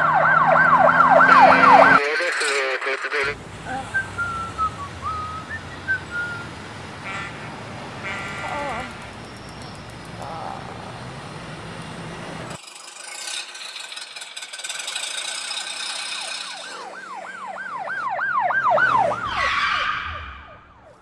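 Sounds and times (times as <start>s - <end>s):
ambulance siren yelping: 0.0s - 2.2s, 16.3s - 21.0s.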